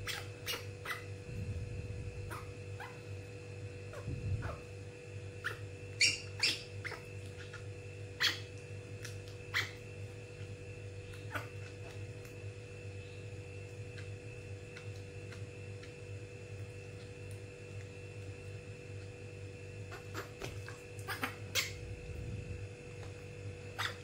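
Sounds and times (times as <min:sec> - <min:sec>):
baby monkey squeaking: 0:00.0 - 0:01.1, 0:02.3 - 0:03.0, 0:05.4 - 0:07.6, 0:08.2 - 0:08.5, 0:09.5 - 0:09.8, 0:19.9 - 0:21.8, 0:23.8 - 0:24.0
electrical hum: 0:00.0 - 0:24.0.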